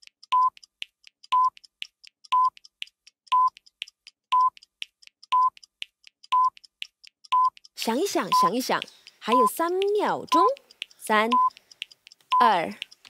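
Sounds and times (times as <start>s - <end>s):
light ticks: 0.0s - 13.0s
short electronic beeps: 1.3s - 1.6s, 2.3s - 2.6s, 3.3s - 3.6s, 4.3s - 4.6s, 5.3s - 5.6s, 6.3s - 6.6s, 7.3s - 9.6s, 11.3s - 11.6s.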